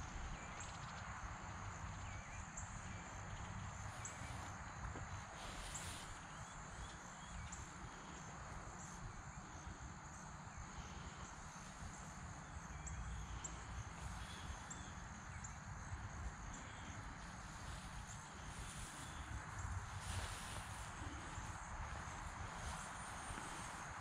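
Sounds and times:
high insect drone: 0.0 - 24.0
wind rumble on microphone: 11.2 - 24.0.

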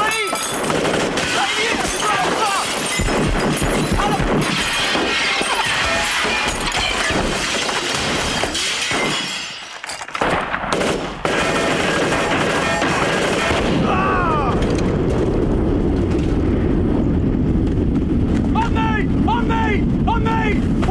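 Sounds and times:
clatter of sharp cracks and impacts: 0.3 - 13.6, 14.5 - 16.5.

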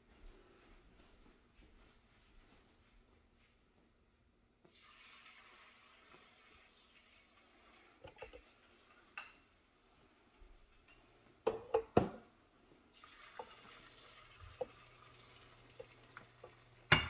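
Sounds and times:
batter sizzling in hot oil: 4.7 - 8.0, 12.9 - 17.0.

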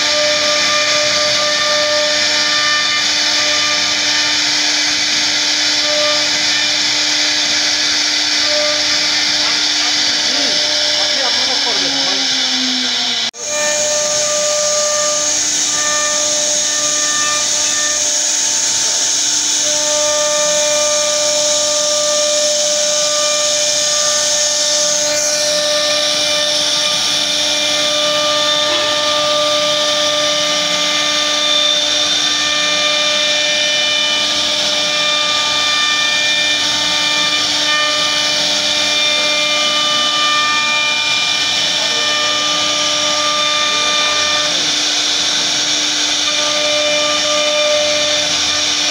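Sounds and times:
router bit hissing through wood: 0.0 - 48.9
whining machine tones: 0.0 - 48.9.

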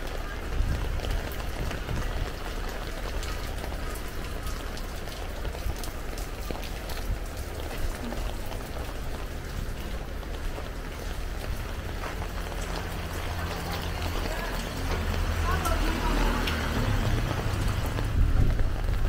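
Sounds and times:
rain drops ticking: 0.0 - 19.0.

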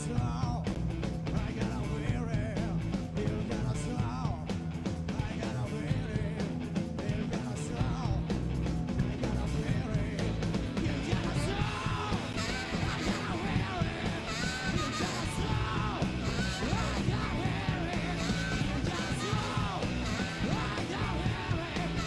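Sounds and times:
garage rock band playing: 0.0 - 22.0
raspy shouted male vocal: 10.8 - 22.0
tenor saxophone melody: 12.2 - 17.3, 18.0 - 20.6.

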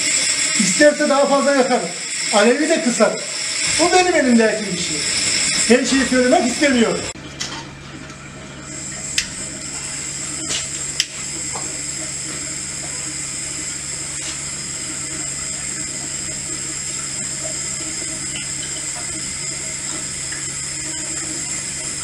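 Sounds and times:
burner flame hissing: 0.0 - 7.2, 8.6 - 22.0
steady low hum: 0.0 - 22.0
burner igniter clicks: 10.6 - 11.7.

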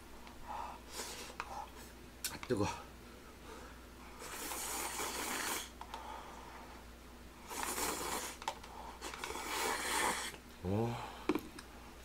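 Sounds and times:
person slurping noodles: 4.2 - 5.8, 7.4 - 8.4, 9.0 - 10.4.

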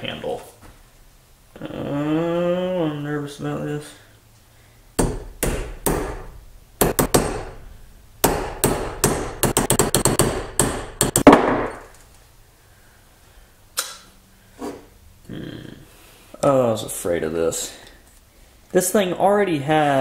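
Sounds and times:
hammer striking metal wedge: 5.0 - 7.6, 8.2 - 11.9.

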